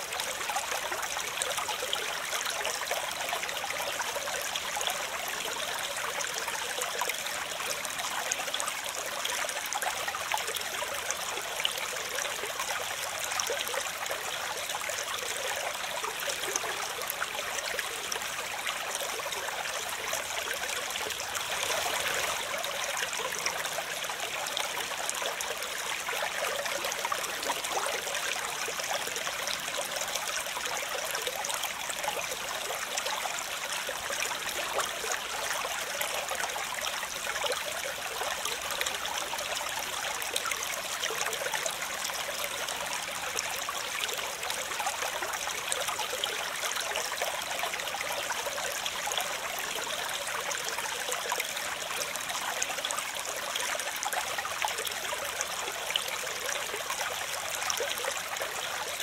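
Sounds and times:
fast stream rushing water: 20.8s - 23.9s.

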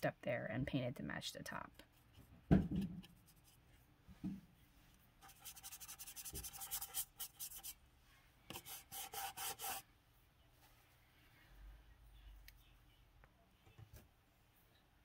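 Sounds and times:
paintbrush scrubbing rough stucco: 8.6s - 9.8s.

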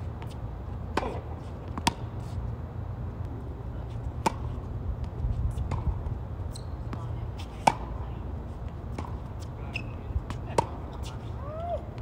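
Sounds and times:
tennis ball bouncing: 0.0s - 2.4s, 4.0s - 8.0s, 8.6s - 11.1s
racket striking ball: 0.9s - 2.1s, 4.2s - 4.5s, 5.7s - 6.0s, 7.6s - 8.0s, 8.9s - 9.2s.

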